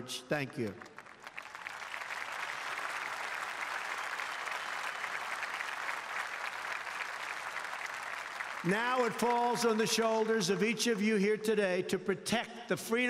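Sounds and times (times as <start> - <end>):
large audience applauding: 0.7 - 10.5.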